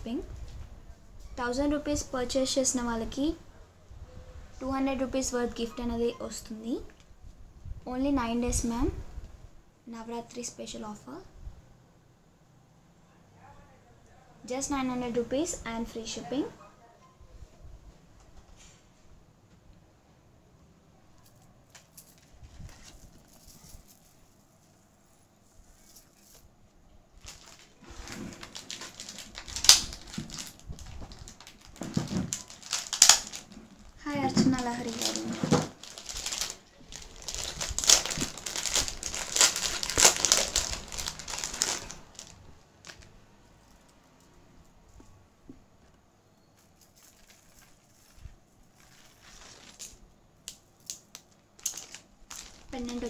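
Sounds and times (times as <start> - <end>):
sharp plastic crackles: 21.2 - 24.4, 27.2 - 43.2, 46.6 - 53.0
plastic packets rustling: 21.6 - 26.5, 27.2 - 43.2, 46.7 - 53.0.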